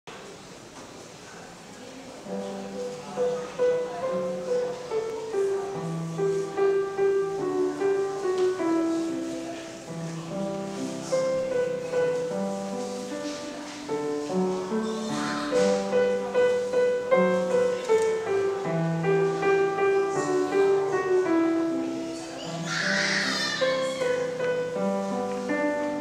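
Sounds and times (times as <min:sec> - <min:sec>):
grand piano playing: 0:02.3 - 0:26.0.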